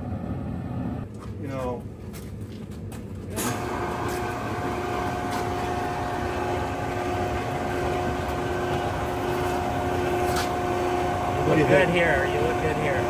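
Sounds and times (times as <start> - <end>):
hydraulic pump whining: 3.3 - 13.0.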